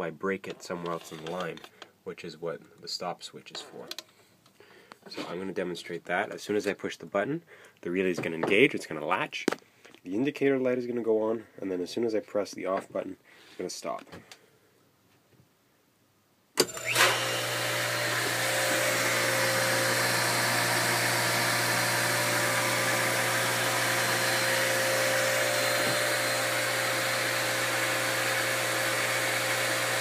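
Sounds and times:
pool pump motor humming: 0:16.6 - 0:30.0.

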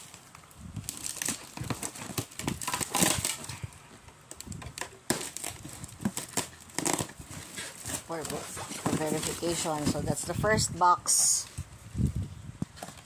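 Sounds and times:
cardboard boxes scraping and rustling: 0:00.8 - 0:04.0, 0:05.1 - 0:10.6.

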